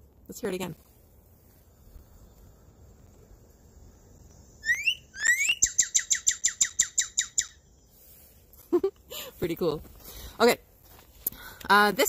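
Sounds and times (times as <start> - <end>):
bird song whistles: 4.6 - 7.7.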